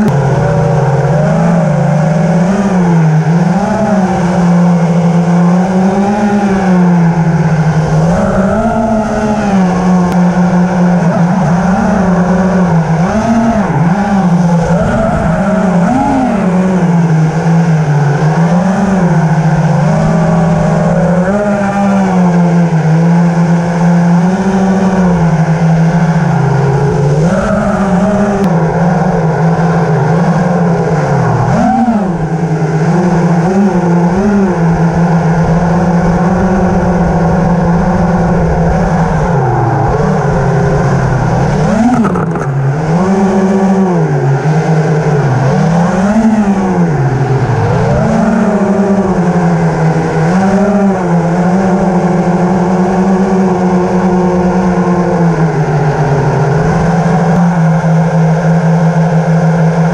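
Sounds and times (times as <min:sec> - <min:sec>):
drone propellers buzzing: 0:00.0 - 0:59.9.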